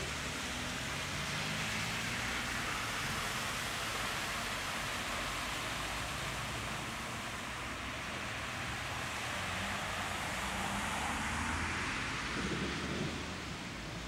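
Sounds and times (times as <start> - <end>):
tyres swishing through water: 0.0 - 14.0.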